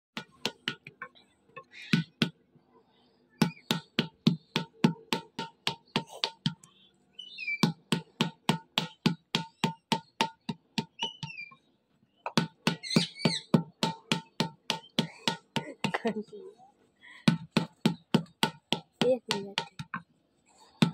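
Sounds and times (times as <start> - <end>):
wooden paddle beating clay pot: 0.2 - 1.0, 3.4 - 6.7, 7.6 - 11.4, 12.3 - 16.4, 17.2 - 20.1
birds chirping: 1.0 - 8.1, 8.9 - 20.9.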